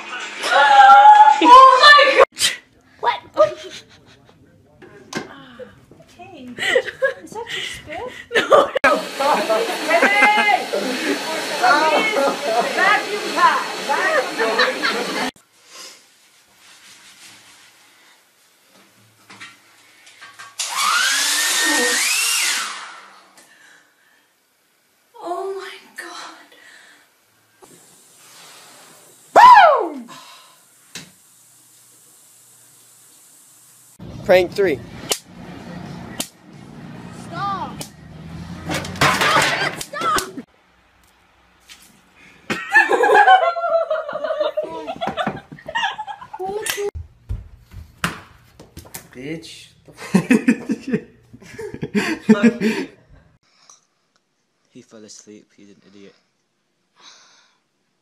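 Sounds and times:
woman screaming: 0.4 - 2.3, 29.3 - 30.1
person giggling: 3.4 - 4.4, 50.0 - 53.0
shower spray hiss: 25.2 - 34.0.

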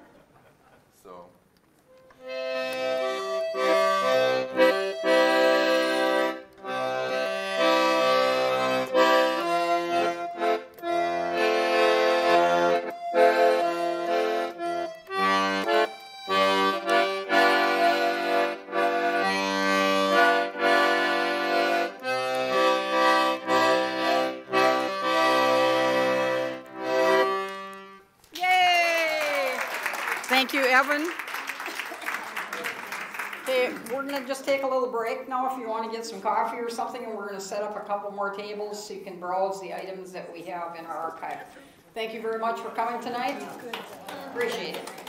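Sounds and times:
accordion playing a tune: 1.9 - 28.1.

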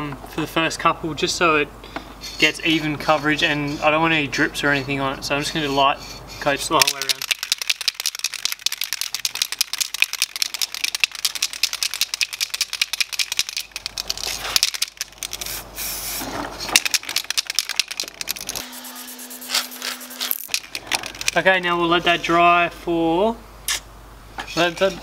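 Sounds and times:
spray can ball rattling: 6.8 - 18.7, 19.4 - 21.5.

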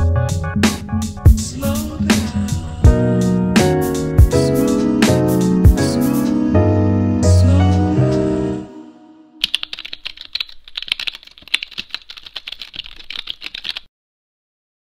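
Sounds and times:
music track: 0.0 - 9.4
typing on a keyboard: 9.4 - 13.9.

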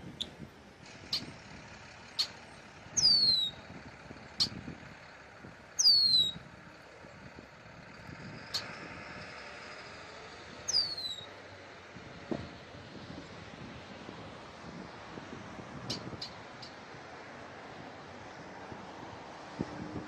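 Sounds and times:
bird whistles sliding downward: 3.0 - 3.6, 5.8 - 6.4, 10.7 - 11.4.

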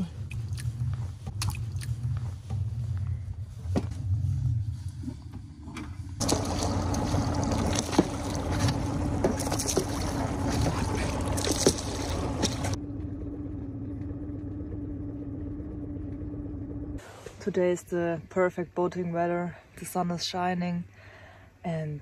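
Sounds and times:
boat motor humming: 5.3 - 17.0
water splashing: 6.2 - 12.8.

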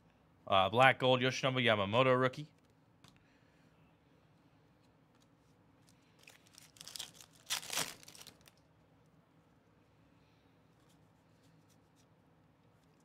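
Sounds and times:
cards being handled: 5.1 - 8.5
foil wrapper tearing and crinkling: 6.2 - 8.6.

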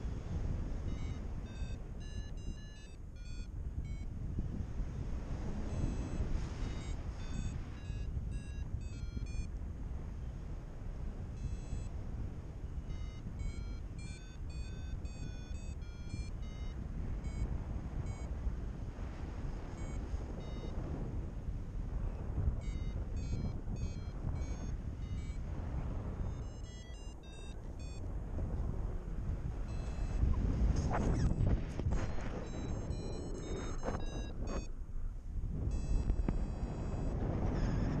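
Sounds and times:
wind rush on microphone: 0.0 - 38.0
variometer beeping: 0.8 - 4.1, 5.6 - 9.5, 11.4 - 11.9, 12.8 - 18.3, 19.8 - 21.0, 22.5 - 25.5, 26.1 - 28.1, 29.6 - 34.7, 35.7 - 38.0.

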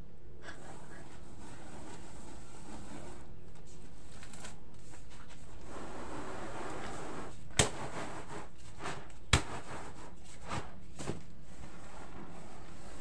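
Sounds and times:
flour swishing in woven tray: 4.8 - 13.0.

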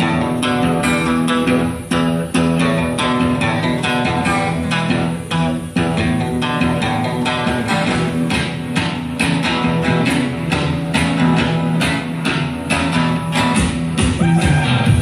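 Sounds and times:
guitar music with steady beat: 0.0 - 15.0.

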